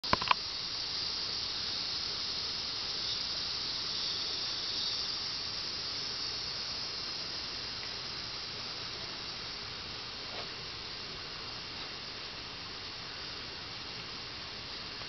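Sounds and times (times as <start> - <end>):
insects hissing: 0.0 - 15.0
sharp clicks: 0.1 - 0.4.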